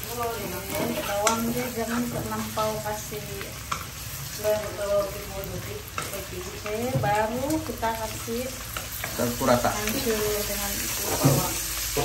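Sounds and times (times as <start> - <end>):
fish sizzling in a wok: 0.0 - 12.0
wooden spatula scraping a wok: 0.2 - 3.0.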